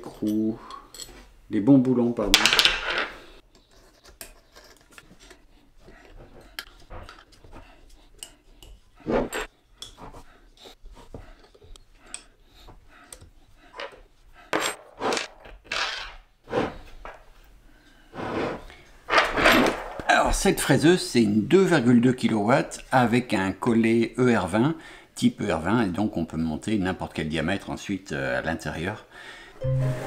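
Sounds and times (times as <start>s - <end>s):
metallic clicks clinks and scrapes: 3.4s - 5.4s.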